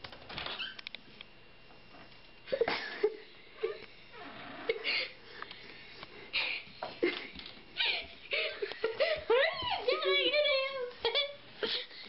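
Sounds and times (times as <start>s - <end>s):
child giggling: 11.0s - 12.0s.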